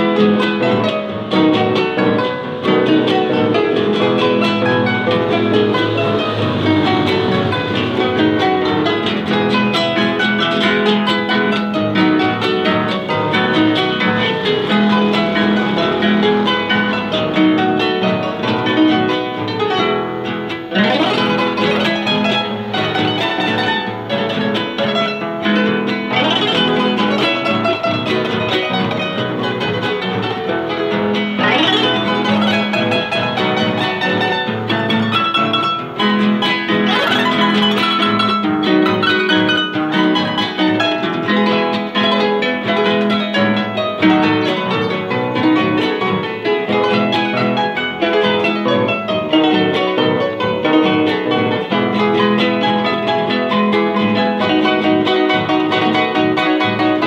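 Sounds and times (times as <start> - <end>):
harp solo: 0.0 - 57.0.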